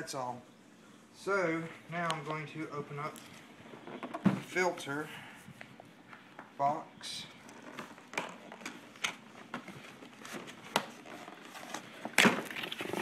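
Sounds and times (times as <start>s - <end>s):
cardboard scraping: 9.5s - 13.0s.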